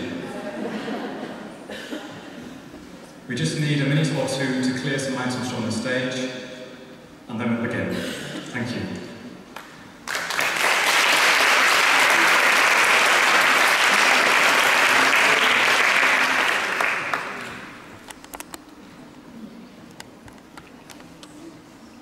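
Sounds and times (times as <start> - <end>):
audience applauding: 9.6 - 18.0
scattered clicks: 18.0 - 18.8.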